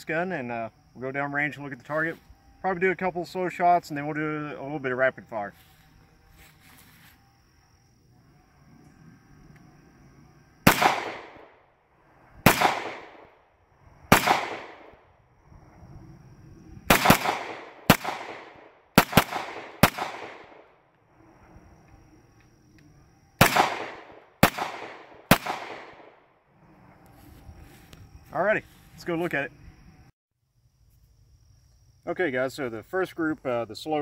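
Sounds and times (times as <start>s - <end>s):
pistol shots with echo: 10.7s - 11.5s, 12.4s - 13.3s, 14.1s - 15.0s, 16.9s - 20.6s, 23.4s - 26.1s.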